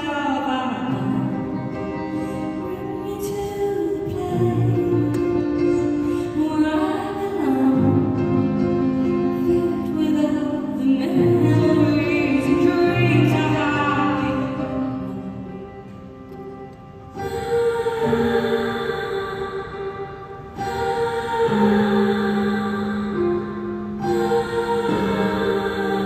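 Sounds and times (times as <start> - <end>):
woman singing: 0.0 - 15.8, 17.2 - 26.0
grand piano chords: 0.0 - 26.0.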